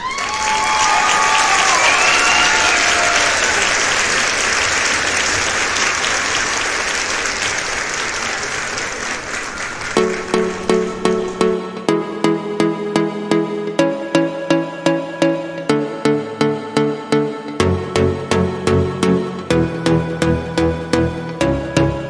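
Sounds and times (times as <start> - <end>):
group applauding and cheering: 0.0 - 11.8
electronic music with steady beat: 9.7 - 22.0.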